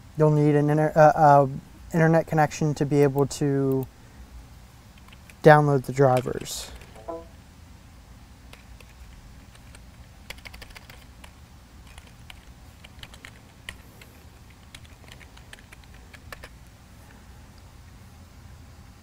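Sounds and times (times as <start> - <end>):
keyboard typing clicks: 8.5 - 13.8, 14.5 - 16.5.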